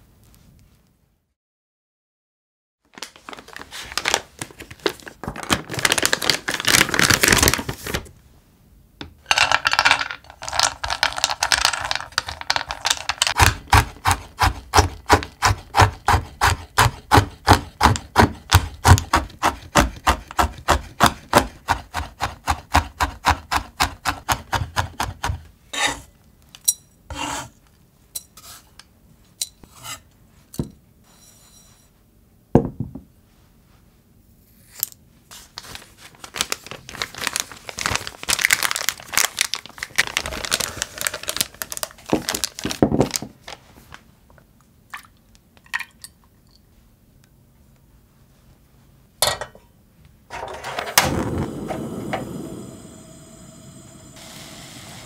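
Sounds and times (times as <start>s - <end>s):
plastic packaging crinkling: 2.9s - 8.2s, 9.3s - 13.4s, 35.4s - 44.1s
knife chopping on wooden board: 13.4s - 25.4s
knocks and scrapes: 50.3s - 52.2s.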